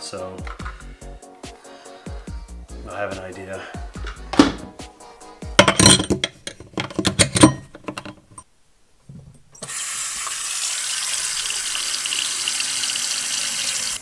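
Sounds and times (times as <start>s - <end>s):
metal strainer rattling in sink: 5.6s - 8.4s
tap water running into sink: 9.6s - 14.0s.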